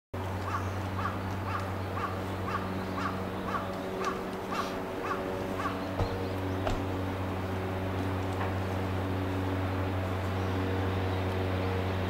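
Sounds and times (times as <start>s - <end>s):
steady low hum: 0.2s - 12.0s
crow cawing: 0.4s - 6.3s.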